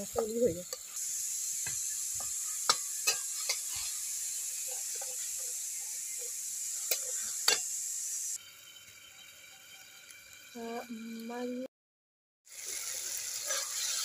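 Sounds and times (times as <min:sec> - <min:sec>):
curry sizzling in wok: 0:00.0 - 0:11.7, 0:12.4 - 0:14.0
spatula scraping and knocking pan: 0:01.6 - 0:04.0, 0:13.4 - 0:14.0.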